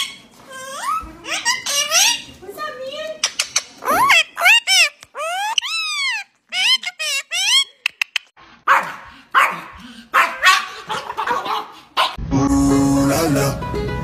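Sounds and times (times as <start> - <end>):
small dog barking: 8.7 - 12.2.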